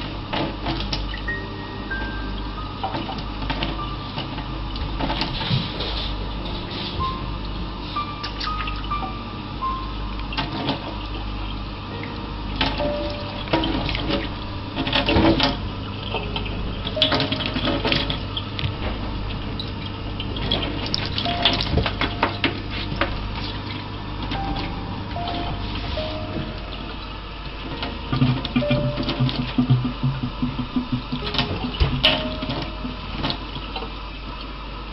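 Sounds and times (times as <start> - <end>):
sharp clicks and knocks: 27.8 - 33.4.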